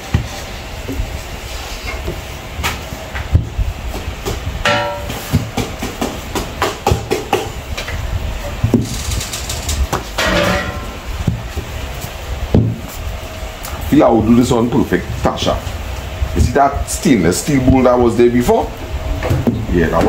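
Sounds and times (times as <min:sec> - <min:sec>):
utensils knocking: 0:04.6 - 0:07.9, 0:08.7 - 0:11.4.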